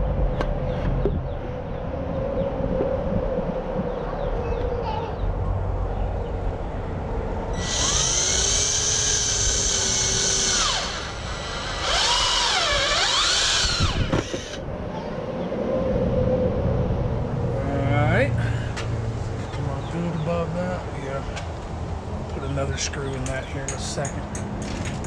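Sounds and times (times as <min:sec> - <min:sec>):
cordless drill driving screws: 0:07.6 - 0:14.6.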